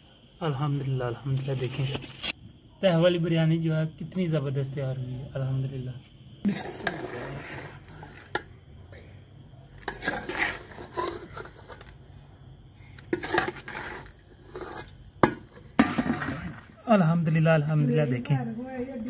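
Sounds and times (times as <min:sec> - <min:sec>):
metal spoon scraping a pot: 0:06.5 - 0:08.4, 0:09.8 - 0:11.9, 0:13.0 - 0:16.7.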